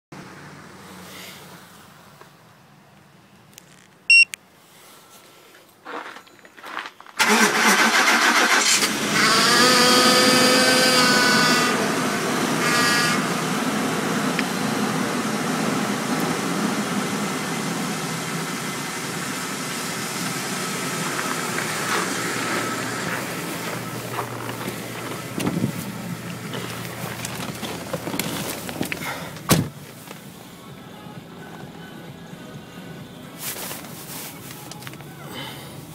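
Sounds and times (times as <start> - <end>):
short electronic beep: 4.1 - 4.4
car engine idling: 7.2 - 35.9.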